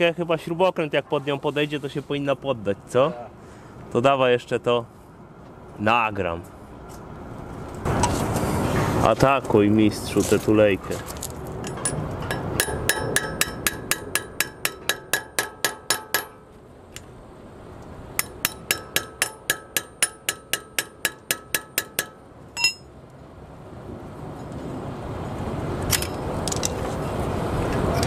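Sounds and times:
hammer striking metal: 11.7s - 16.5s, 18.2s - 22.9s
metal clink: 18.2s - 22.9s.

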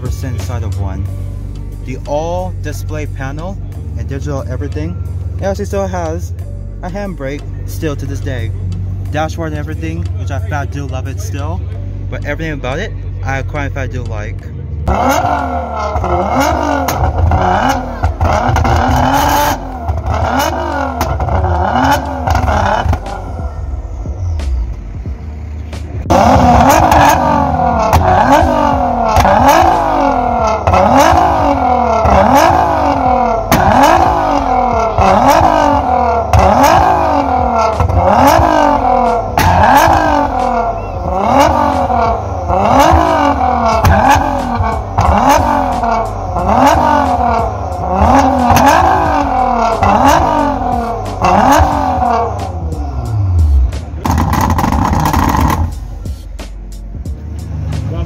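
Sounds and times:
rising pitch sweep: 14.9s - 56.4s
electronic music with steady beat: 14.9s - 58.0s.

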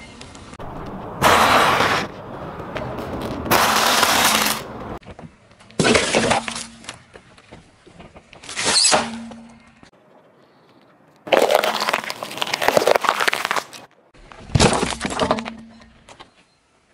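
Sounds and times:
tyre crushing objects: 1.2s - 5.1s, 11.3s - 15.9s.

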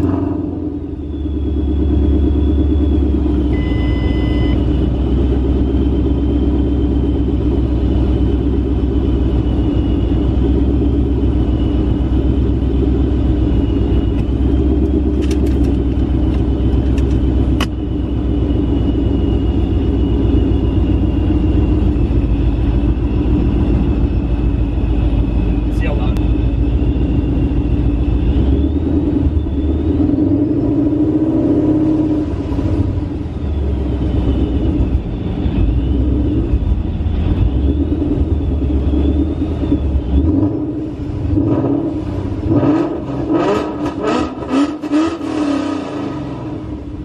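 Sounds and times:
car engine idling loudly: 0.0s - 47.0s
short beep: 0.7s - 5.0s
faint high whine: 0.7s - 14.5s, 17.7s - 41.4s.

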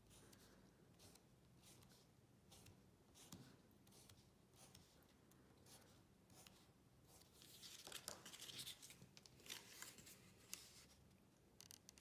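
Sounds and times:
paper rustling and crinkling: 7.3s - 11.0s.

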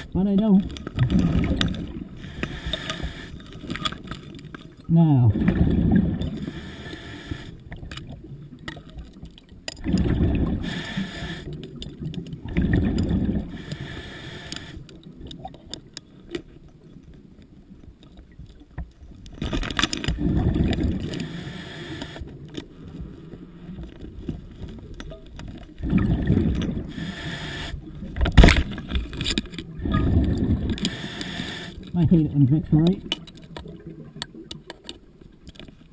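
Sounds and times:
bubbles rushing from regulator: 0.9s - 2.2s, 5.2s - 6.4s, 9.8s - 10.7s, 12.4s - 13.6s, 20.1s - 21.2s, 25.8s - 26.9s, 29.7s - 30.8s
diver breathing underwater: 1.2s - 3.8s, 5.4s - 7.8s, 9.9s - 11.6s, 12.6s - 14.9s, 20.2s - 23.8s, 26.0s - 28.0s, 29.8s - 31.9s.

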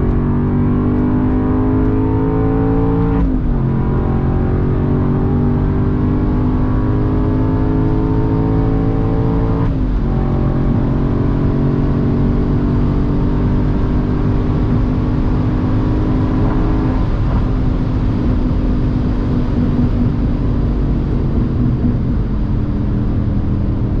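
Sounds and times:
car engine accelerating: 0.0s - 24.0s
tyre and road noise: 16.0s - 24.0s.

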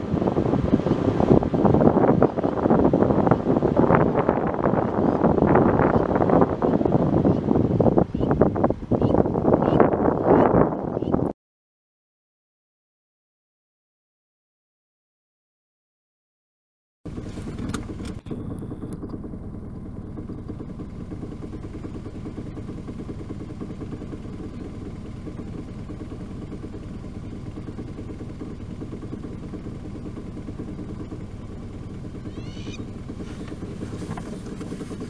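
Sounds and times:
vehicle engine rumbling: 0.0s - 11.4s, 17.1s - 35.0s
bird chirping: 32.2s - 32.9s.

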